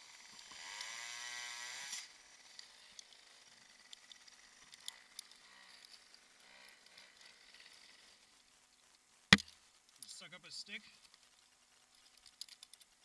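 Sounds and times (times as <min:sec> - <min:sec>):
climbing gear clicking and rustling: 0:10.9 - 0:13.0.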